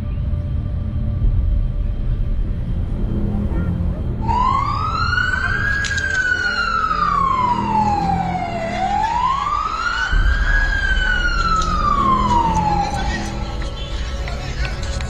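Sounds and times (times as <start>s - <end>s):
low street rumble: 0.0s - 15.0s
siren wailing: 3.2s - 13.8s.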